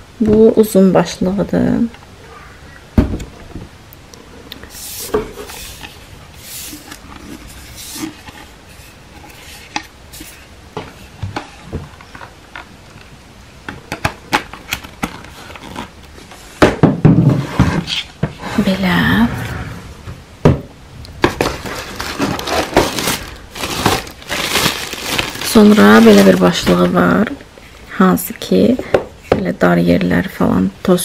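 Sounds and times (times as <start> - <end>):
packaging rustling: 13.9 - 16.0, 21.2 - 27.4.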